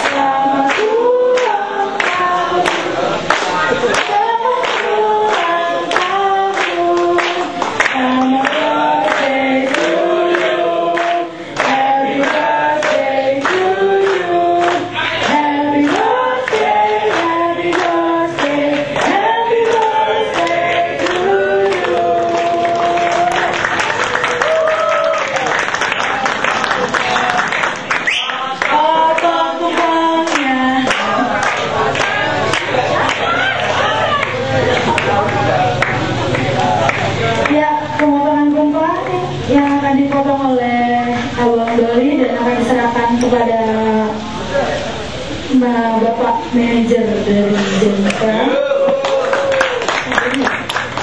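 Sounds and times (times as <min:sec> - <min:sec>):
group singing: 0:00.0 - 0:24.2, 0:27.3 - 0:48.8
cheering and applause: 0:00.0 - 0:37.6, 0:48.1 - 0:51.0
clapping in time: 0:00.0 - 0:38.1, 0:48.9 - 0:51.0.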